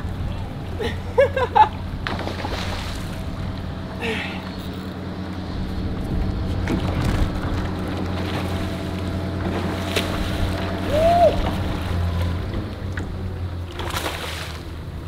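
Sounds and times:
steady low hum: 0.0 - 15.0
water lapping around boat: 0.0 - 15.0
fish splash: 13.8 - 14.7.

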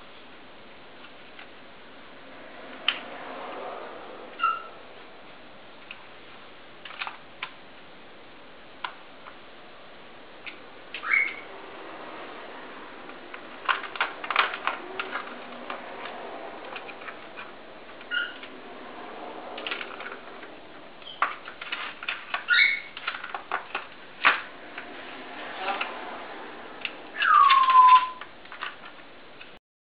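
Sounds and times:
short high squeaks: 4.4 - 4.8, 11.0 - 11.5, 18.0 - 18.5, 22.4 - 23.0, 27.2 - 28.2.

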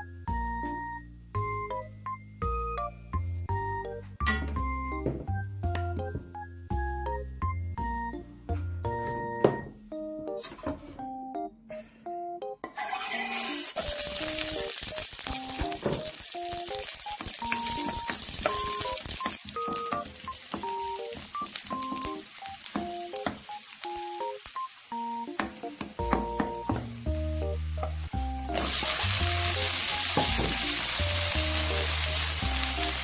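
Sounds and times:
background music: 0.0 - 33.0
garlic sizzling in hot oil: 12.8 - 33.0.

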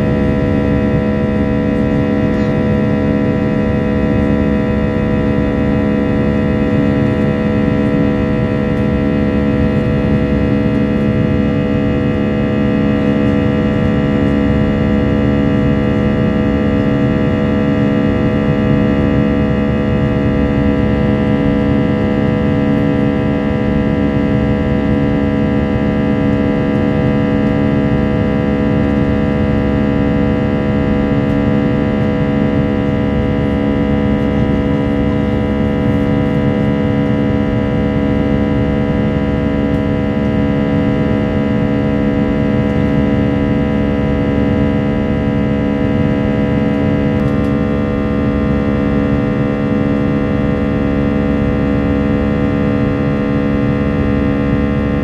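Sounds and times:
jet engine drone in cabin: 0.0 - 55.0.

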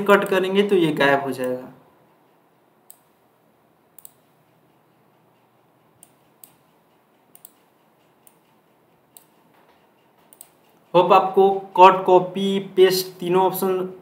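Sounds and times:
computer mouse clicking: 1.3 - 3.2, 3.9 - 11.0.

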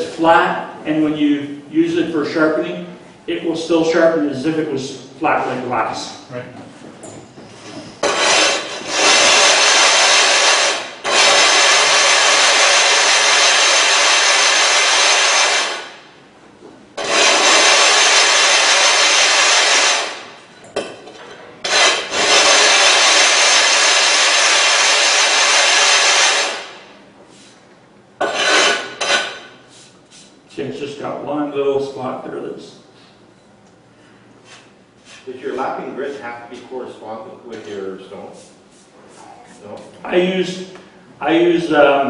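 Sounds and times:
sharpening stone gritty scraping: 28.2 - 29.5.

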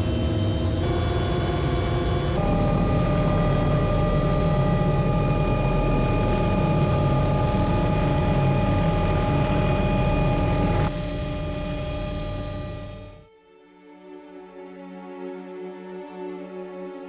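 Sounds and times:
helicopter engine and rotor: 0.0 - 13.3.

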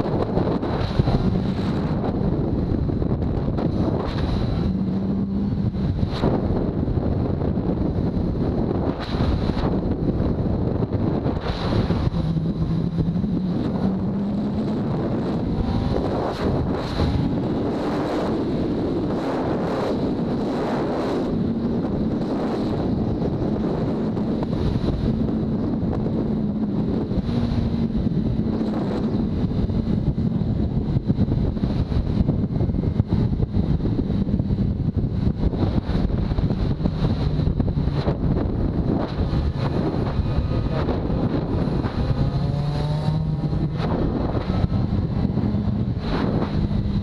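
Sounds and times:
motorcycle engine drone: 0.0 - 47.0
wind noise on microphone: 0.0 - 47.0.

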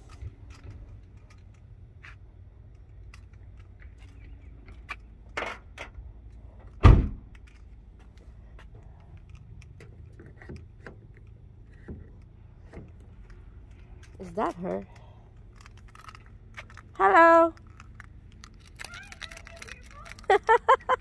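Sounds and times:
heavy thump: 6.8 - 7.2
keys jingling: 13.2 - 21.0.

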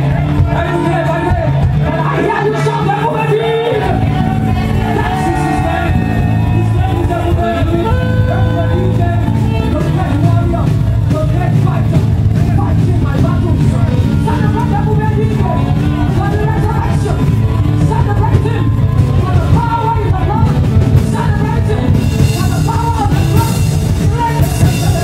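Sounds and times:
live band music: 2.6 - 25.0
saxophone melody: 3.9 - 10.1.

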